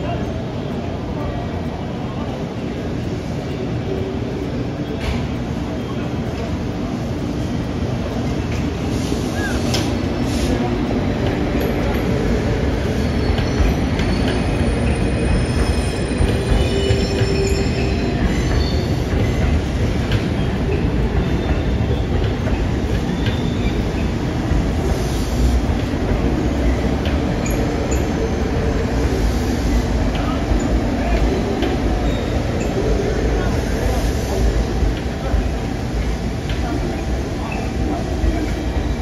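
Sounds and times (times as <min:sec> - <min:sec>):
train rumbling on tracks: 0:00.0 - 0:39.0
wheel squeals: 0:12.8 - 0:24.3.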